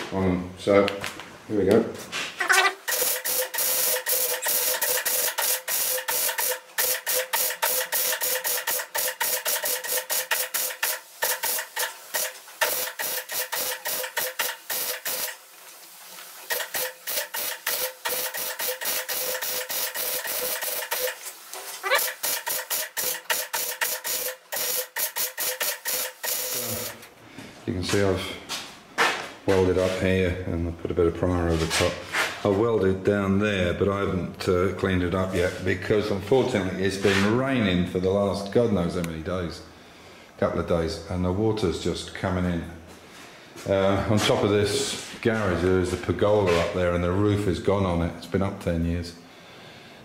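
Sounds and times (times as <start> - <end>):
welder crackling and sputtering: 2.4 - 27.1.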